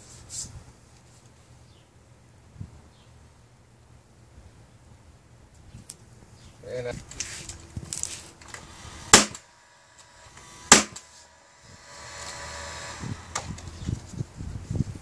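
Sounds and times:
steady hum: 7.0 - 15.0
nail gun firing: 8.4 - 9.5, 10.4 - 11.1.

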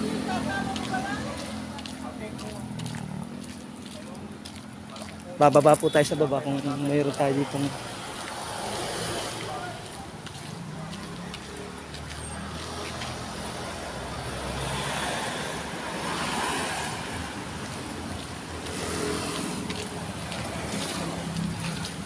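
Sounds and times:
road traffic: 0.0 - 22.0.

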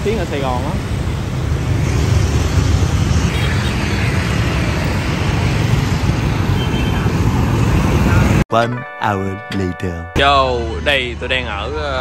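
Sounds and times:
city street traffic rumble: 0.0 - 8.4, 10.2 - 12.0.

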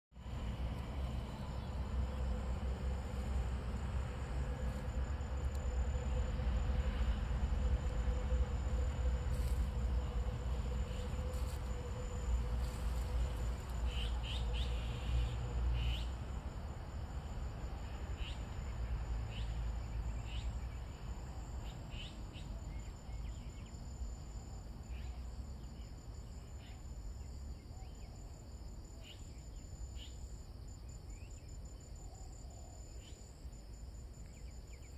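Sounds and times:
low rumble on microphone: 0.1 - 18.0
short insect chirps: 0.2 - 16.6, 17.2 - 34.9
insects trilling: 0.2 - 34.9.

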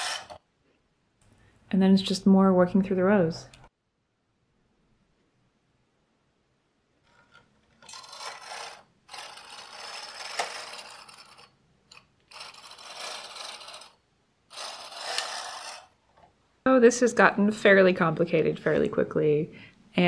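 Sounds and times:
knitting carriage scraping over needles: 0.0 - 0.4, 7.0 - 16.0.

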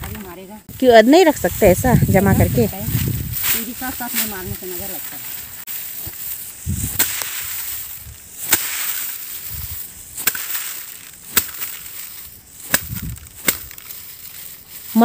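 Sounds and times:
rice stalks snapping as cut: 5.8 - 15.0.

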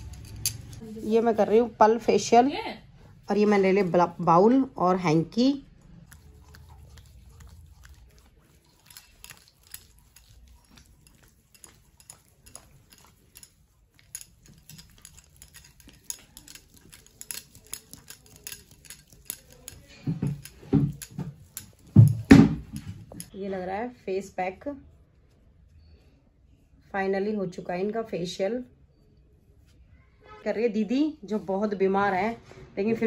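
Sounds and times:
sticky clicks of skin on skin: 5.8 - 22.0.

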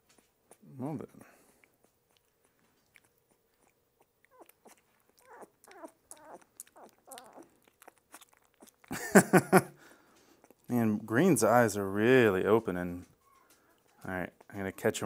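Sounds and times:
puppy licking and smacking: 1.4 - 9.0, 10.1 - 10.7.

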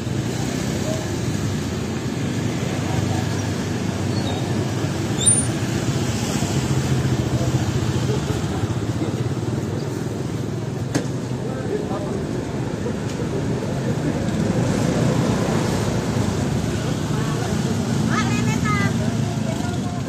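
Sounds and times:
murmur of voices: 0.0 - 20.0.

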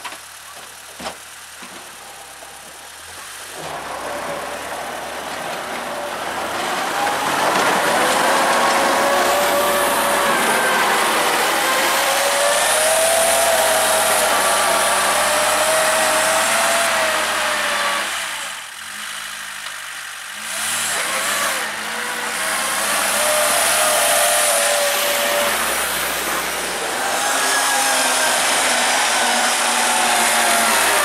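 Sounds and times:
tractor engine running: 0.0 - 31.0.

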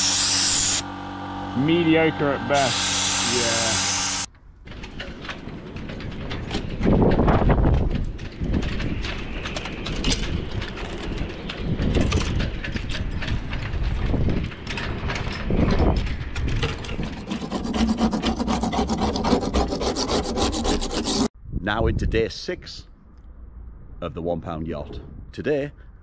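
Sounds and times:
scraper blade scraping wood: 0.0 - 0.9, 2.5 - 4.3, 16.7 - 21.3.

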